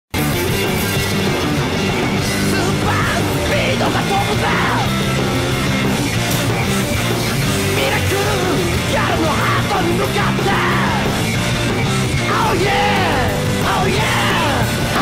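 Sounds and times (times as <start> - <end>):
heavy rock music: 0.1 - 15.0
person yelling vocals: 2.5 - 4.9, 7.7 - 11.2, 12.3 - 15.0.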